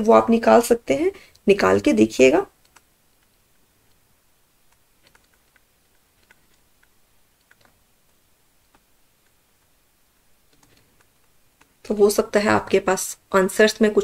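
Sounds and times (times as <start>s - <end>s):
stylus tapping on tablet: 4.7s - 9.8s.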